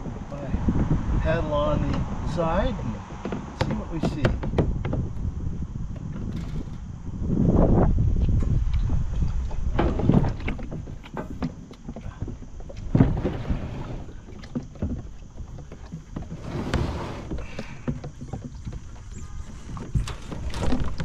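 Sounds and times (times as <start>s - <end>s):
wind rumble on microphone: 0.0s - 21.0s
sharp knocks: 3.2s - 5.1s
plastic kayak hull scraping: 8.2s - 21.0s.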